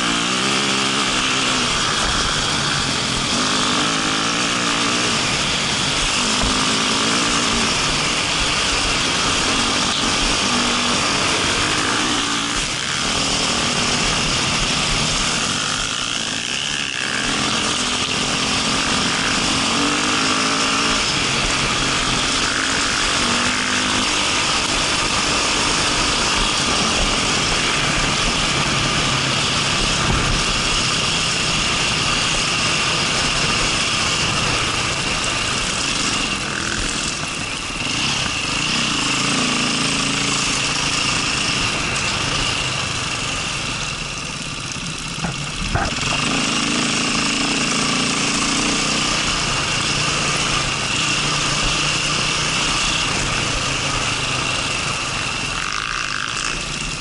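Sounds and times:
dirt bike engine revving: 0.0 - 57.0
wind rushing over microphone: 23.2 - 47.5.

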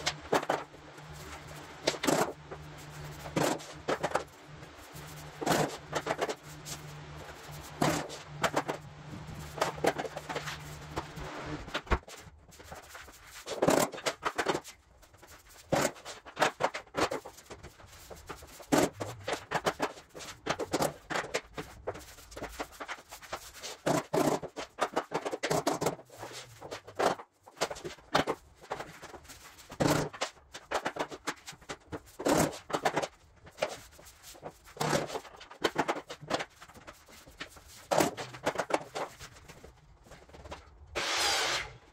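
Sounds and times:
low steady hum: 0.0 - 13.2
floor planks knocking and scraping: 0.0 - 40.9.

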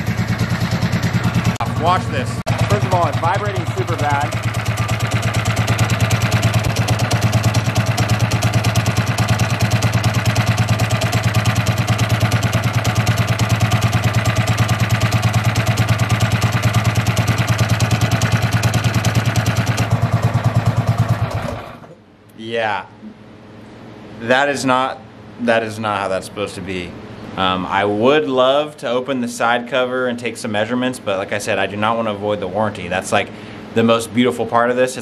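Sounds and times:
kart engine idling: 0.0 - 21.9
clutch and chain rattling: 2.5 - 20.0.

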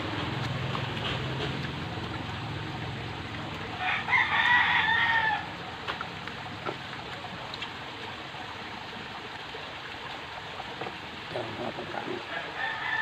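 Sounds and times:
rooster crowing: 3.8 - 5.6, 12.3 - 13.0.

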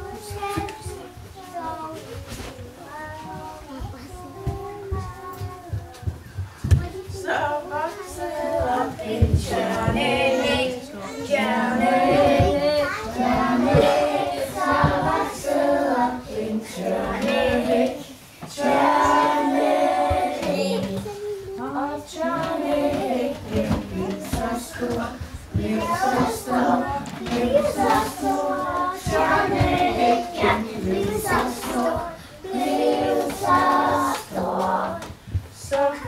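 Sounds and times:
children singing: 7.5 - 36.0.

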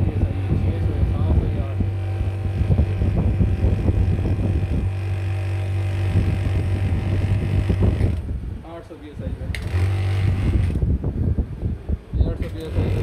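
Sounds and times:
compressor rattling: 0.0 - 8.6, 9.4 - 11.2, 12.2 - 13.0
refrigerator compressor humming: 0.0 - 8.6, 9.6 - 11.4.

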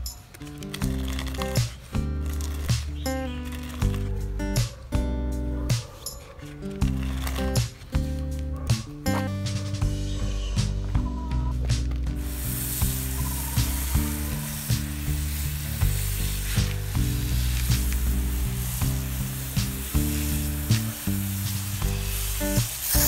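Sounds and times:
background music with bass line: 0.0 - 23.0
steady hiss: 12.1 - 23.0.

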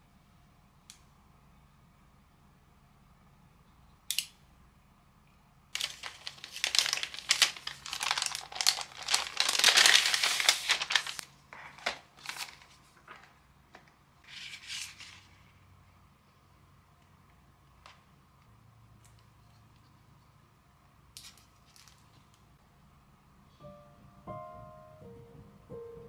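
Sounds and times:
paper envelope tearing: 5.8 - 13.2
packaging rustling: 5.8 - 15.3.

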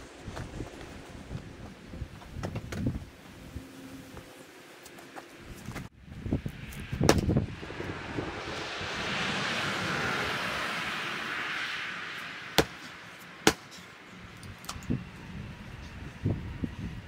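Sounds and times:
soft rushing noise: 5.0 - 14.0.

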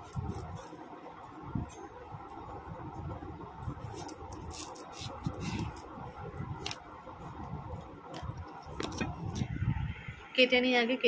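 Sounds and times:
blade scraping potato skin: 3.8 - 5.9.

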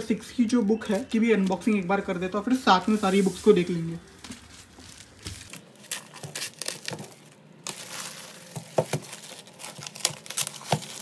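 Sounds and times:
plastic bag crinkling and tearing: 4.3 - 11.0
scissors cutting plastic: 5.1 - 11.0.

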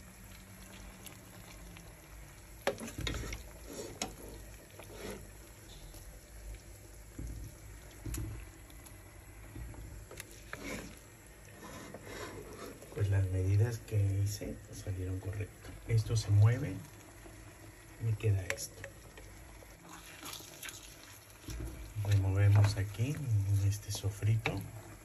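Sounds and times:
spatula scraping cooked grain: 2.6 - 6.0, 10.1 - 13.1.

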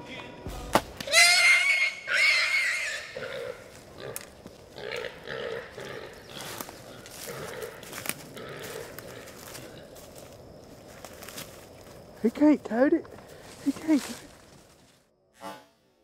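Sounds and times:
arrow striking animal: 0.5 - 1.1
hog squealing: 1.1 - 4.2.

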